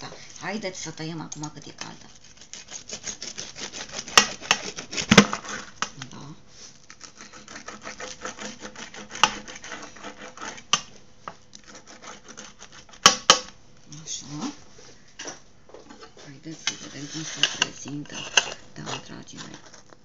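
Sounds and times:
pizza cutter slicing crust: 1.8 - 5.8, 6.9 - 10.9, 11.6 - 13.5.

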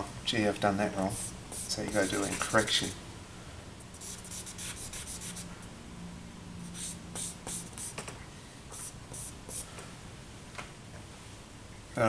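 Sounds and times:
charcoal scratching on paper: 1.1 - 2.8, 4.0 - 5.5, 6.7 - 8.0, 8.8 - 9.7.

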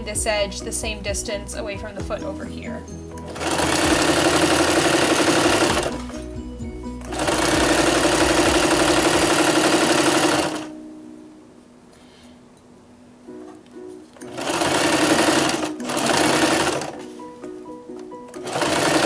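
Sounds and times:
electric sewing machine stitching: 3.2 - 6.3, 7.0 - 10.7, 14.2 - 17.1, 18.3 - 19.0.

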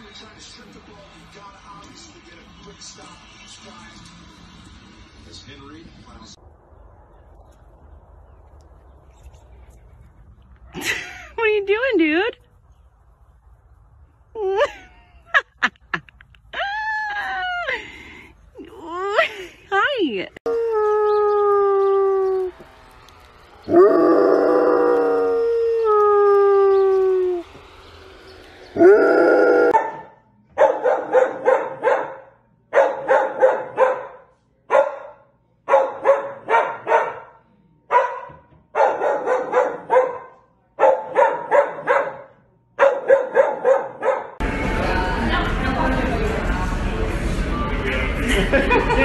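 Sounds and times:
dog howling: 20.4 - 22.6, 23.5 - 27.7, 28.7 - 29.8
dog barking: 29.7 - 44.4.

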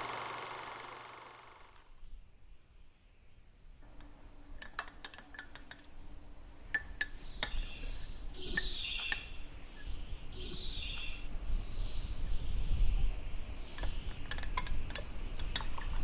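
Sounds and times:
high chirping calls: 7.1 - 12.2.

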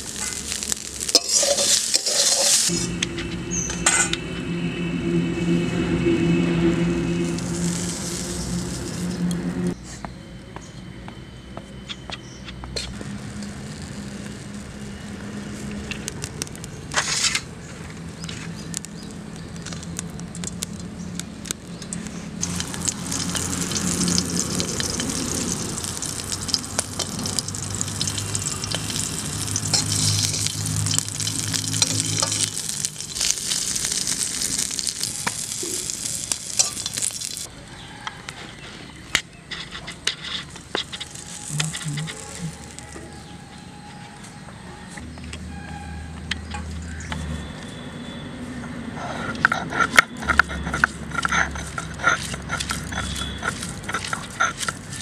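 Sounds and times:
chilies sizzling in oil: 0.0 - 4.1, 7.0 - 9.7, 12.8 - 37.5, 40.1 - 43.4, 50.2 - 55.0.

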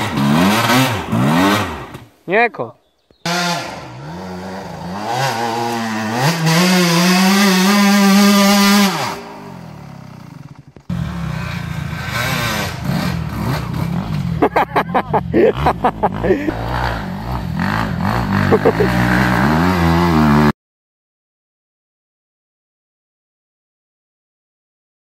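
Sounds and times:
dirt bike engine revving: 0.0 - 2.1, 3.2 - 20.5
second dirt bike engine: 0.0 - 2.1, 2.9 - 20.5.

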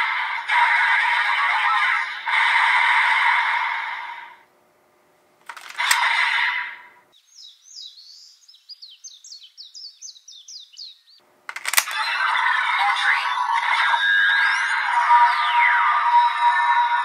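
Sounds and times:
birds chirping: 6.0 - 17.0.

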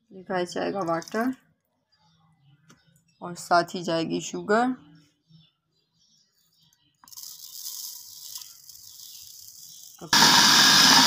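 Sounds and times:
sugar pouring with soft hiss: 7.1 - 10.1
electric blender running: 10.1 - 11.0.

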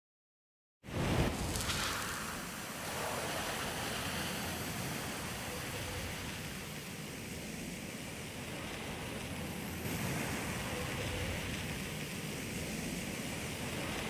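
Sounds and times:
steam hissing: 9.0 - 14.0.

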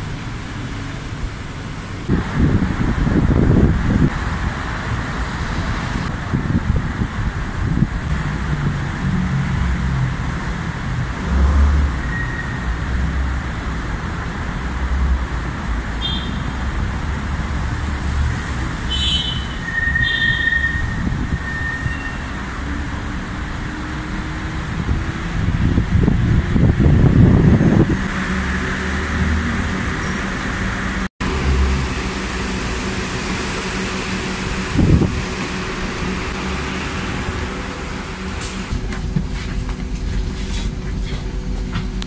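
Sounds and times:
electric bus approaching: 0.0 - 42.0
traffic rumble: 0.0 - 42.0
brief high squeaks: 19.3 - 22.4.

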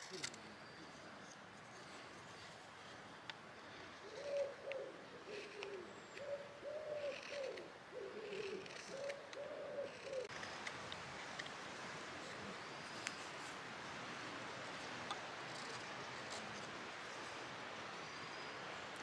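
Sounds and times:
pigeon cooing: 3.7 - 10.3.

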